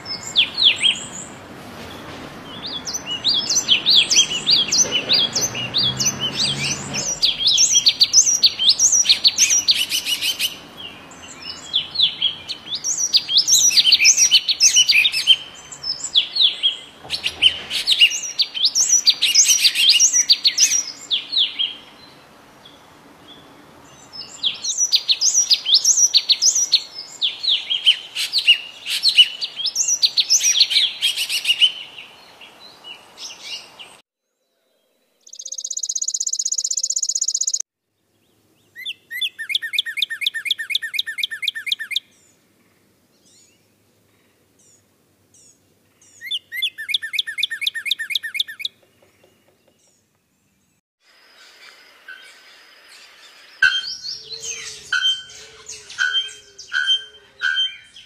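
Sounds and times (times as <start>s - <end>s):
songbird chirping: 0.0s - 58.0s.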